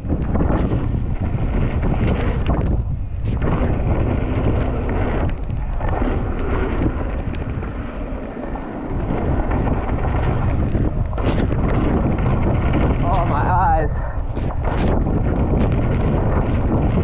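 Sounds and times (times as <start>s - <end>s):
wind rumbling on microphone: 0.0s - 17.0s
tyres rolling on wet dirt: 0.2s - 13.3s.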